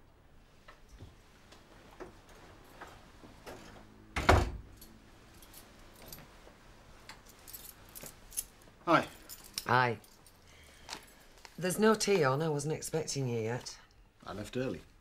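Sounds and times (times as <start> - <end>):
door shutting with thud: 4.2 - 4.7
keys jingling: 4.7 - 6.3, 7.2 - 10.4.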